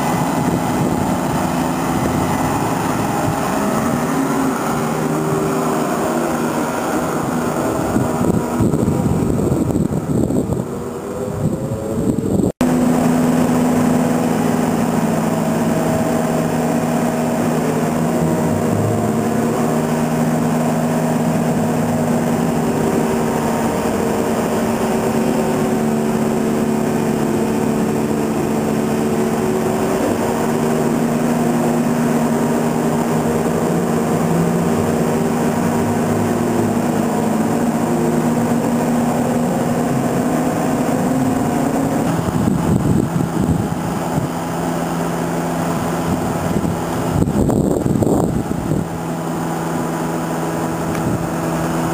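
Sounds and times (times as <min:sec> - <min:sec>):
motor-generator humming: 0:00.0 - 0:51.9.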